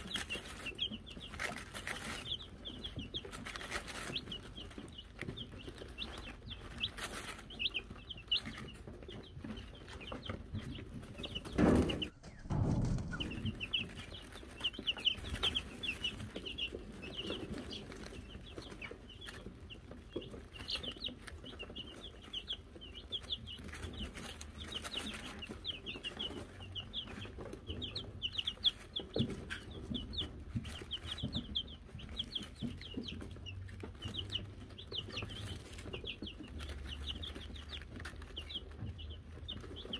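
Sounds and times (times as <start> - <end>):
chicks peeping: 0.0 - 39.9
loud low thump and rustle: 11.4 - 14.2.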